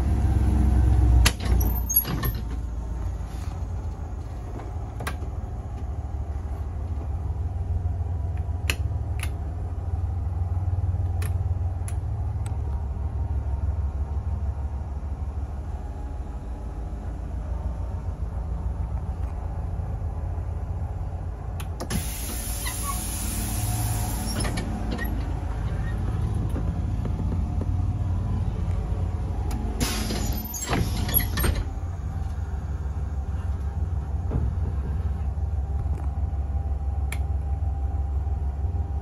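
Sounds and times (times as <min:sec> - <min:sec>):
bus engine idling: 0:00.0 - 0:39.0.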